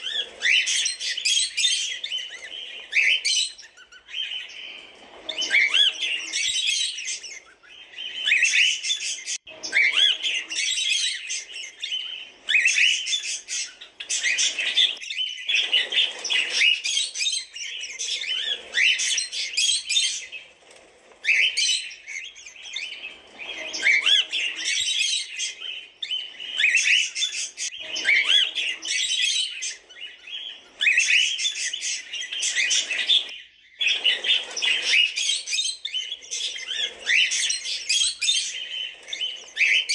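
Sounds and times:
cockatiels chirping: 0.0 - 39.9.

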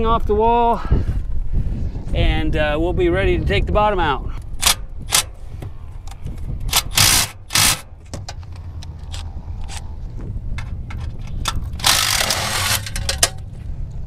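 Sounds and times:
steady low rumble: 0.0 - 14.0
tools scraping metal box: 10.6 - 13.4.

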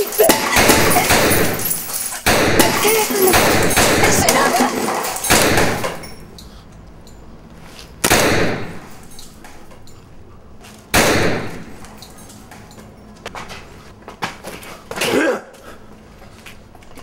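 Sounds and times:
loud sharp ringing impacts: 0.0 - 4.4, 5.0 - 6.4, 8.0 - 9.2.

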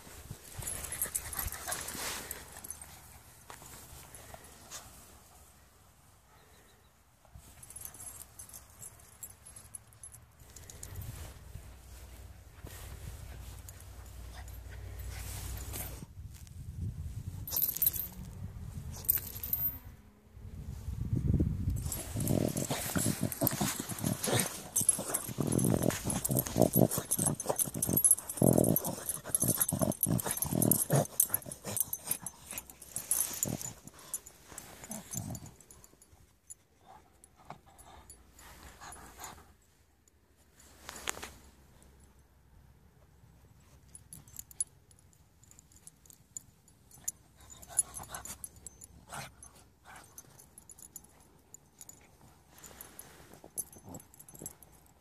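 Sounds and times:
paws scraping sand: 0.0 - 5.1, 21.8 - 35.5
collar tags jingling: 0.0 - 5.5, 6.3 - 20.0, 21.6 - 40.2, 43.1 - 55.0
dog snuffling: 21.8 - 35.4.

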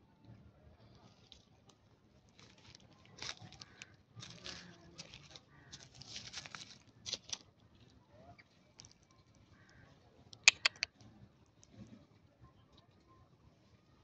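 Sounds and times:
dry leaves crackling and rustling: 2.3 - 7.9.

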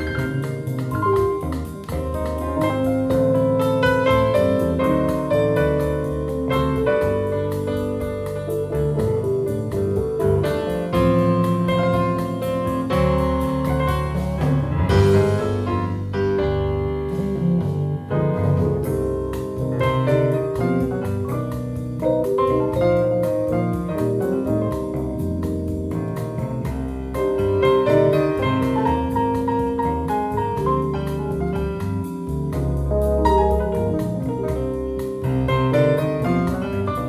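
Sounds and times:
jazz piano from vinyl record: 0.0 - 37.0.

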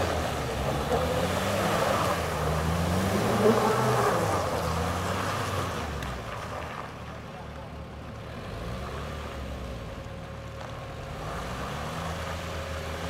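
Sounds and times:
engine revving: 0.0 - 6.2, 8.3 - 10.0, 11.0 - 13.0
tyres splashing through slush: 0.0 - 7.6.

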